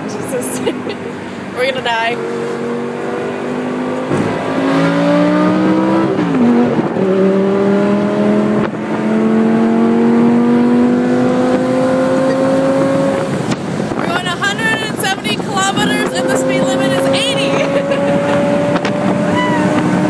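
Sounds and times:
car engine accelerating: 0:00.0 - 0:20.0.

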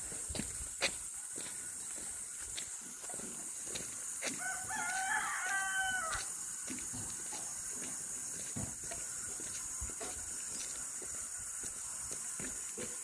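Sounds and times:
rooster crowing: 0:04.3 - 0:06.3.

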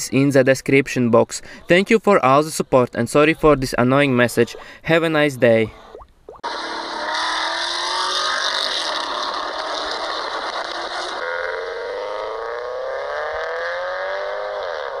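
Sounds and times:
car engine accelerating: 0:06.4 - 0:15.0.

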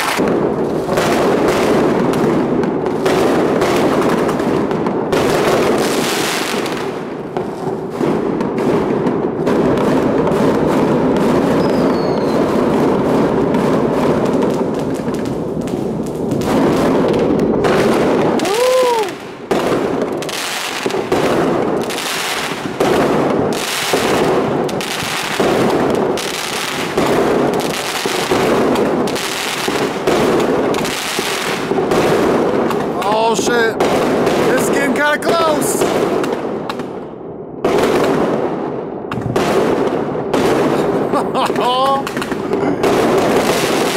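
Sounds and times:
fireworks crackling and bursting: 0:00.0 - 0:43.9
firework whistle: 0:11.5 - 0:12.7, 0:18.3 - 0:19.2.

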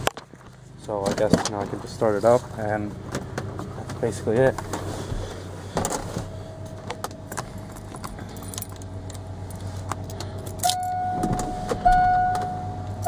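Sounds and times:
keys jangling on key ring: 0:07.4 - 0:09.3
electronic warning tone: 0:10.6 - 0:13.0.

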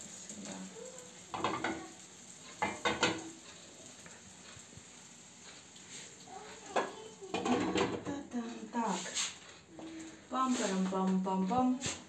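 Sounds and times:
pancakes sizzling in oil: 0:00.0 - 0:12.0
spatula scraping pan: 0:01.3 - 0:04.7, 0:05.4 - 0:12.0.

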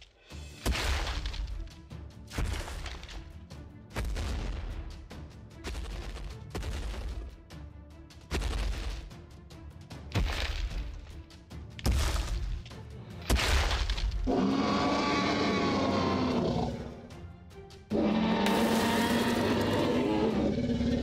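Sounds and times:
background music: 0:00.0 - 0:21.0
dinosaur roars: 0:14.3 - 0:17.1, 0:17.9 - 0:21.0.

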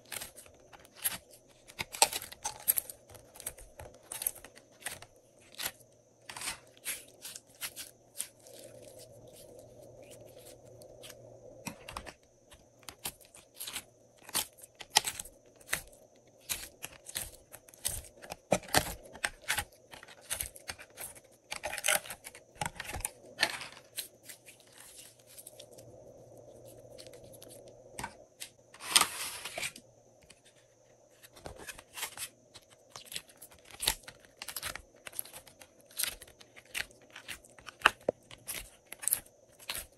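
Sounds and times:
plastic tray crackling: 0:00.0 - 0:25.8.

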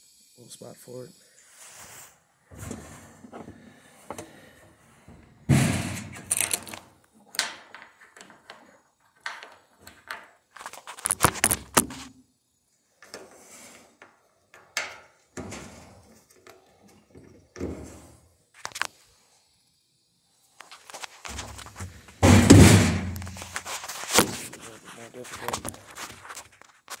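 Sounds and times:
washer parts knocking and rattling: 0:05.5 - 0:06.8, 0:21.4 - 0:23.8.

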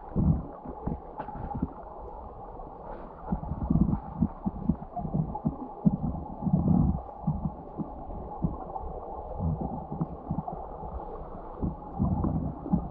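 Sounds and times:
muffled underwater river rumble: 0:00.0 - 0:12.9.

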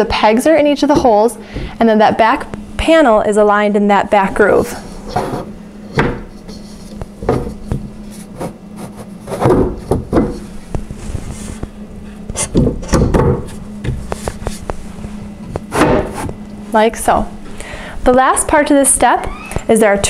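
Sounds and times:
wood rubbing: 0:04.4 - 0:16.4
wooden panel knocks and thuds: 0:09.3 - 0:10.4, 0:12.5 - 0:14.1, 0:15.7 - 0:16.2.

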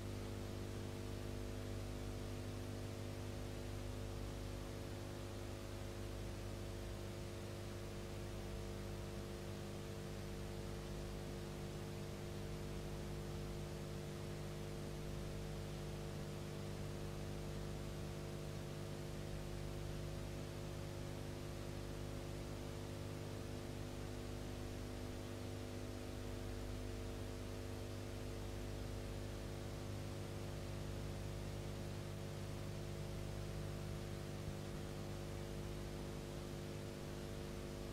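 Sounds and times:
constant hiss: 0:00.0 - 0:37.9
electrical mains hum: 0:00.0 - 0:37.9.

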